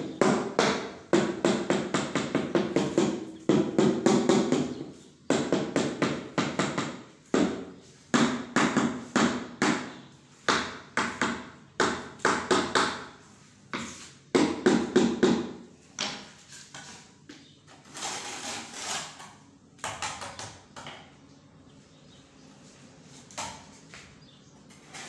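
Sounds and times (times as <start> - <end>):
trowel scraping over mortar: 17.7 - 19.4, 24.7 - 25.0.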